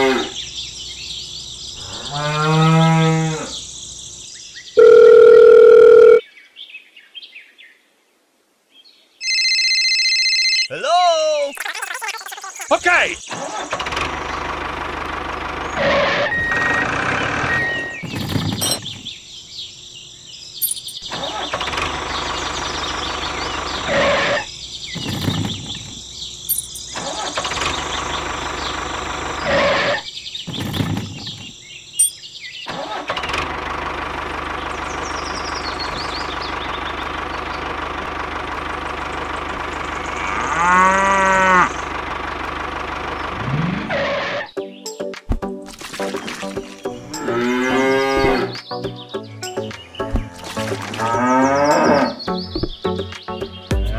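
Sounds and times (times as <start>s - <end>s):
tractor engine running: 12.7s - 19.3s, 20.6s - 32.1s, 32.7s - 44.0s.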